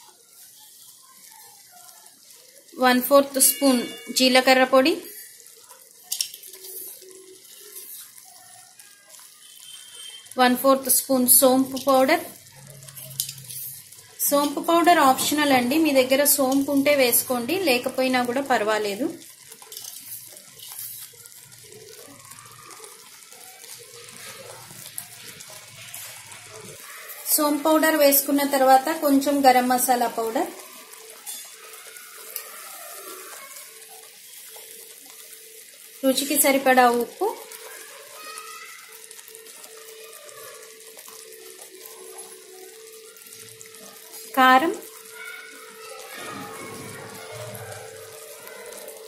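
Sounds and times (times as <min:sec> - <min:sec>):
thick sauce bubbling and popping: 0:00.0 - 0:49.0.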